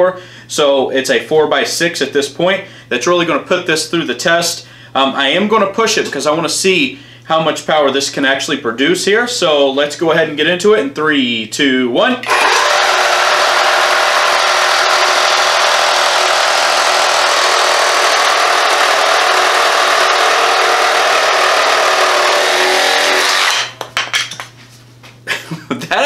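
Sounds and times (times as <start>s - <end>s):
reciprocating saw cutting wood: 12.3s - 23.8s.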